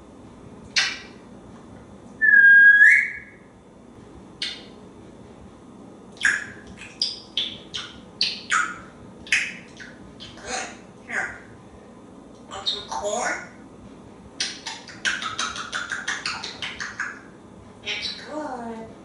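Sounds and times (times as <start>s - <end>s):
parrot chirps: 0.7s - 1.2s, 2.2s - 3.4s, 4.4s - 4.8s, 6.2s - 11.5s, 12.5s - 13.5s, 14.4s - 18.3s
parrot whistling: 0.8s - 1.1s, 2.2s - 3.5s, 4.4s - 4.7s, 6.2s - 11.4s.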